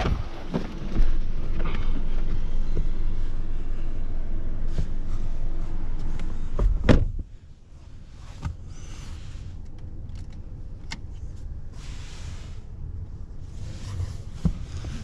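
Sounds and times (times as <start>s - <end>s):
outdoor rumble: 0.0s - 15.0s
car door shutting with thud: 6.6s - 7.2s.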